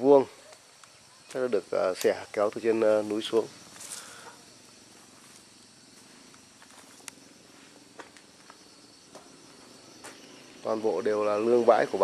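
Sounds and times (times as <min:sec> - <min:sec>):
low steady hiss: 0:00.0 - 0:12.0.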